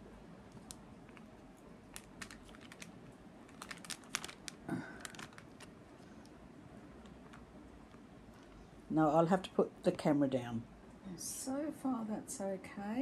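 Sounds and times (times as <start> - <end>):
tape peeling with clicks: 0.5 - 6.4.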